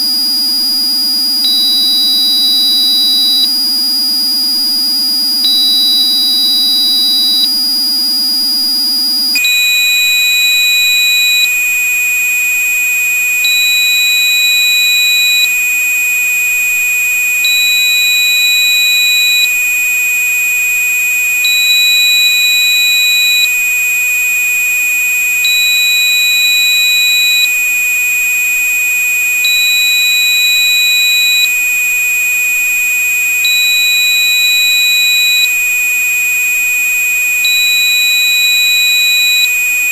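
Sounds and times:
repeating alarm-like beep: 1.1 - 8.6, 9.3 - 11.6, 13.5 - 15.5, 17.5 - 19.5, 21.5 - 23.5, 29.5 - 31.6, 33.6 - 35.5, 37.5 - 39.5.

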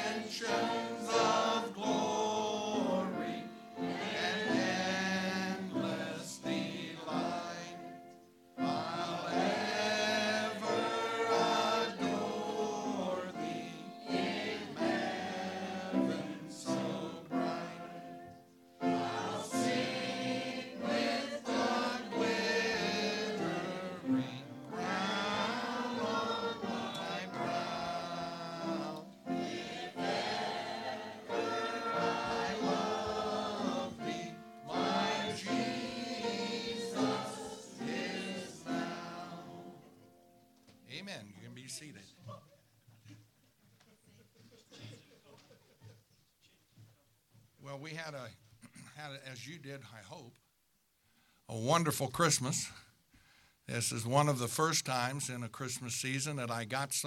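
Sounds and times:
group singing a hymn: 0.0 - 40.4.

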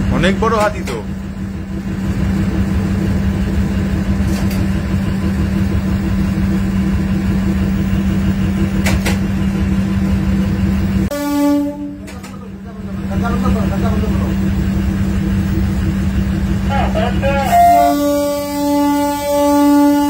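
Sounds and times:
train locomotive drone: 0.0 - 20.0
locomotive horn blast: 11.0 - 12.6, 16.5 - 20.0.

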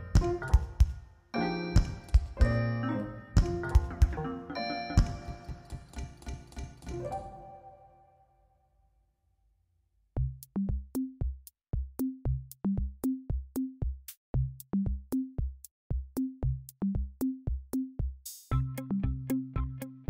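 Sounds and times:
drum machine beat: 0.0 - 7.1, 10.2 - 19.8
bass line: 1.8 - 4.3, 18.5 - 20.0.

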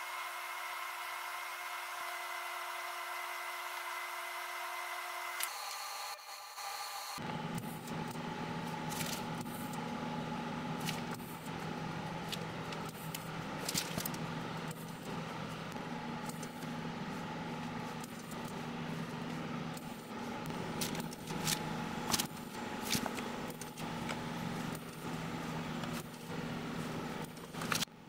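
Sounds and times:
low machine hum: 7.2 - 28.0.

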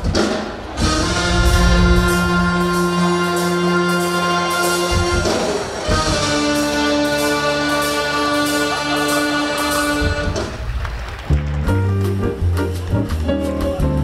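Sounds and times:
title music with held chords: 0.6 - 3.9.

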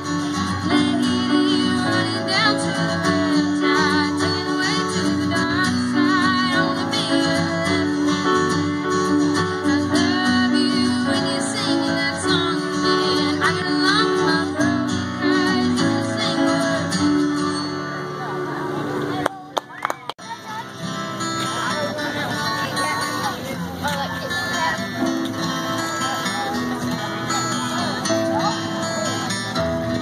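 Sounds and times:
woman singing: 0.0 - 17.5
strummed acoustic guitar: 0.0 - 19.6, 20.2 - 30.0.

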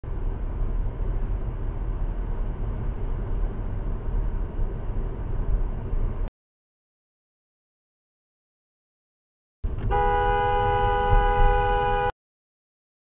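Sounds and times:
car engine and tyre rumble: 0.0 - 6.3, 9.6 - 12.1.

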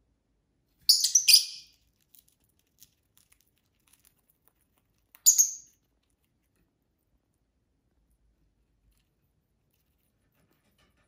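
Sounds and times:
lovebirds chirping: 0.8 - 1.8, 5.1 - 5.8.

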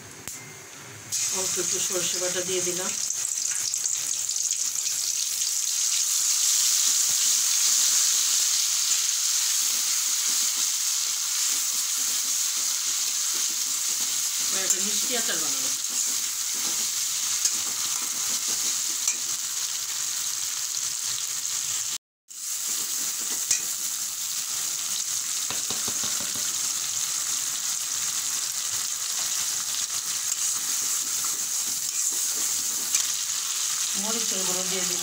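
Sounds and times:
paste sizzling in oil: 1.1 - 35.0
metal spatula scraping and tapping: 15.8 - 19.3, 22.7 - 23.8, 30.3 - 33.2.

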